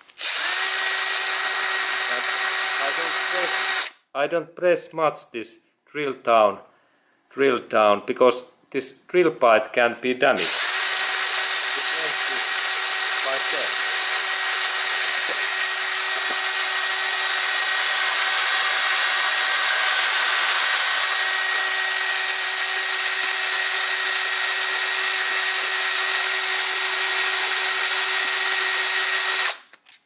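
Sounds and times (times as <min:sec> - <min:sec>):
power drill whining: 0:00.0 - 0:04.0, 0:10.4 - 0:29.7.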